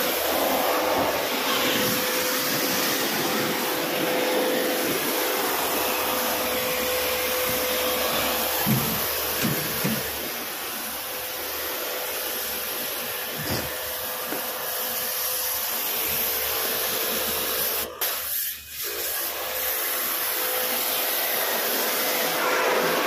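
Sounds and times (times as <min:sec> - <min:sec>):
air conditioning fan rushing: 0:00.0 - 0:15.5.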